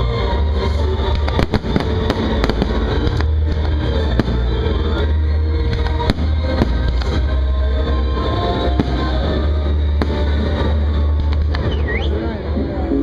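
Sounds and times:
firework shells bursting and crackling: 0.5 - 12.1.

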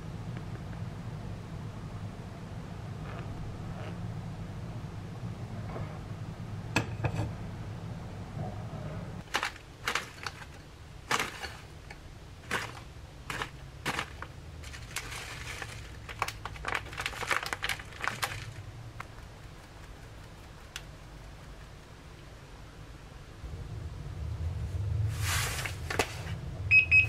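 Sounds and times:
steady low hum: 0.0 - 27.0
sugar bag crinkling: 9.2 - 11.7, 12.4 - 19.1
metal sieve knocks and rustles: 9.2 - 11.8, 12.4 - 16.2.

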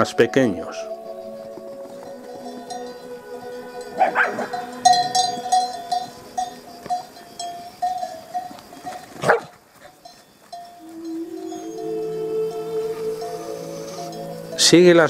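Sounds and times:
small bells clinking: 0.0 - 15.0
dog barking: 4.0 - 4.6, 9.2 - 9.6.

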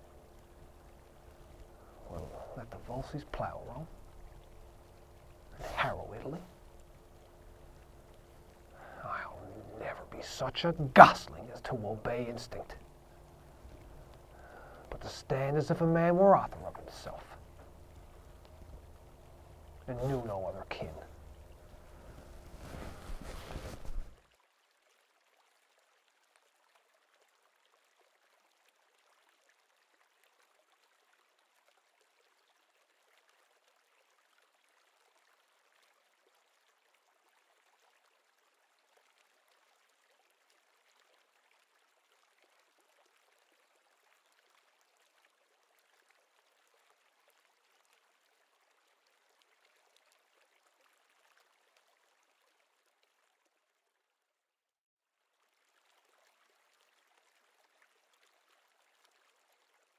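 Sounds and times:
faint steady hiss: 0.0 - 53.9.

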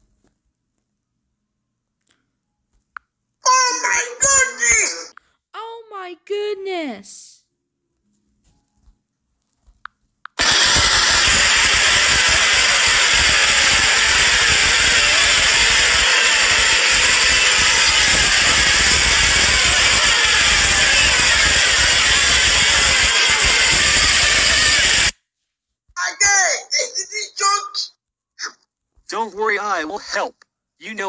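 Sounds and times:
loud harsh steady noise: 10.4 - 25.2.

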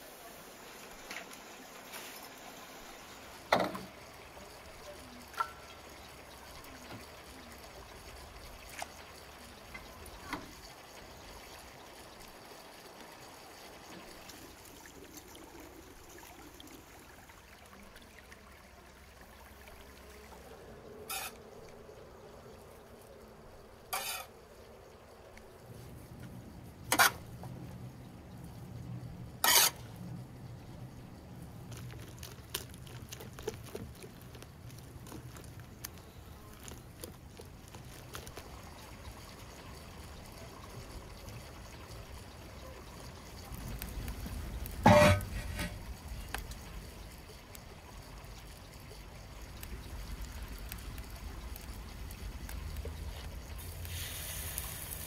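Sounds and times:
low steady background noise: 0.0 - 55.0.

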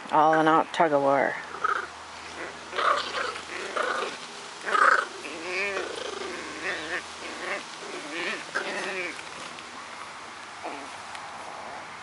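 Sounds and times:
dogs growling in play: 1.5 - 9.6, 10.6 - 11.9.

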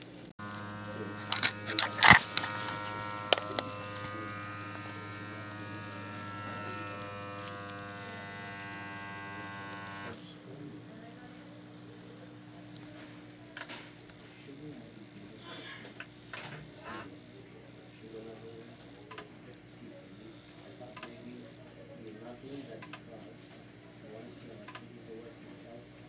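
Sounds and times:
blood pressure pump buzzing: 0.0 - 17.3.

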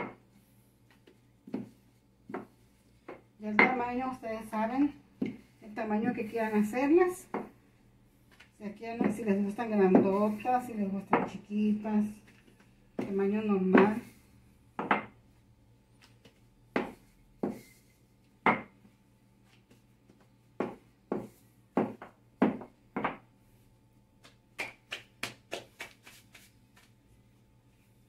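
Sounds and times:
rolling pin rolling dough: 0.0 - 4.0, 8.9 - 11.4, 16.2 - 17.8, 18.4 - 23.2.

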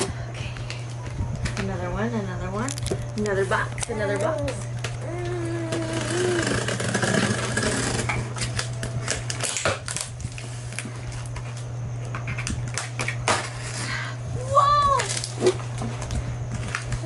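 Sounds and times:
person humming: 5.0 - 6.8.

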